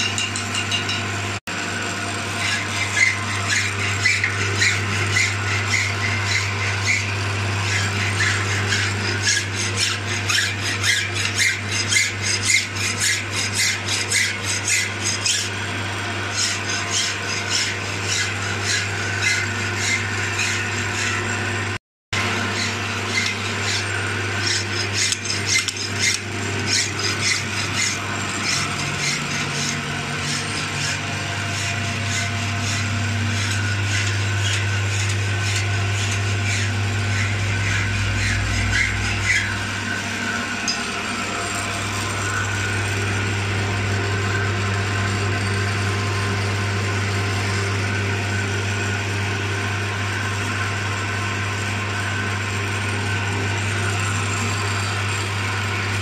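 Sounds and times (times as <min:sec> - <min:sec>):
cutting tool scraping and chattering: 0:00.0 - 0:01.1, 0:01.8 - 0:49.0
metal lathe humming: 0:00.0 - 0:56.0.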